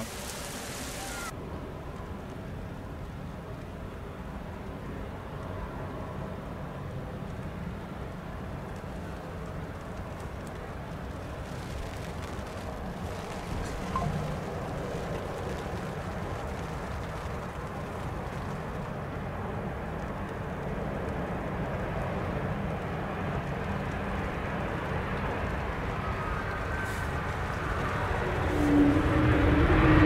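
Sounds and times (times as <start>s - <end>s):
heavy rain: 0.0s - 30.0s
jet engines landing: 9.1s - 30.0s.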